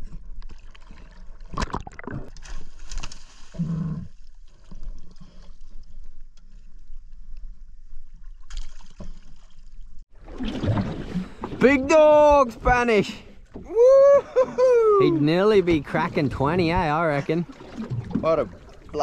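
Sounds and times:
water splashing against boat hull: 0:08.4 - 0:13.9, 0:15.1 - 0:19.0.

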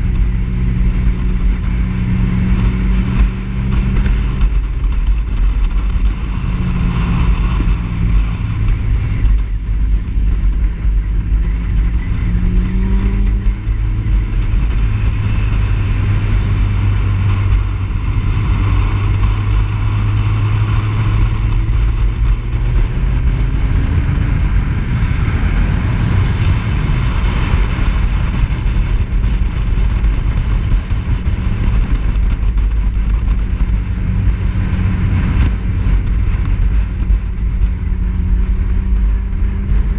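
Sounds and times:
motorcycle engine revving: 0:00.0 - 0:39.9
wind rush on microphone: 0:00.0 - 0:39.9.

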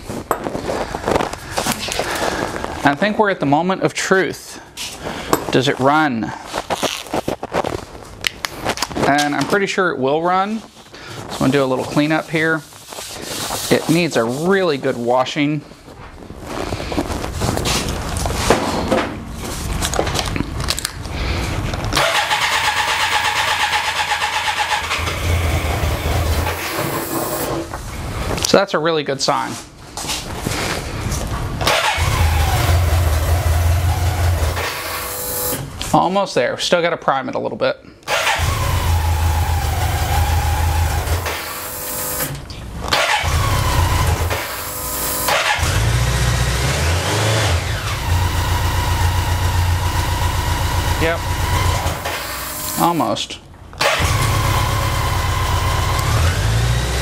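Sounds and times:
electric starter cranking engine: 0:21.9 - 0:27.7, 0:31.6 - 0:35.7, 0:38.1 - 0:53.0, 0:53.8 - 0:57.0.

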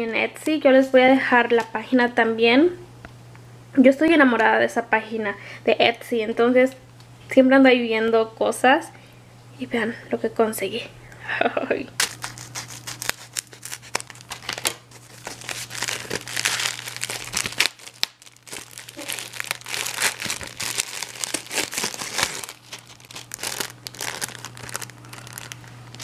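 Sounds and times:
plastic packaging crinkling: 0:12.0 - 0:26.0
scissors snipping plastic: 0:12.0 - 0:26.0.

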